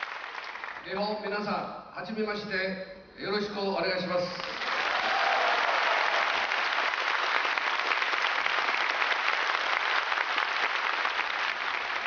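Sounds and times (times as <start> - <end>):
audience applauding: 0.0 - 0.8, 4.4 - 12.0.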